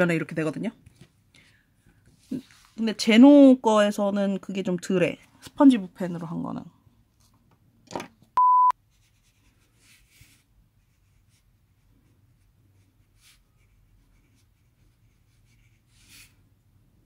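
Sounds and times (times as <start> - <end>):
loud steady beep: 8.4 - 8.7
brush pen writing on paper: 9.0 - 16.4.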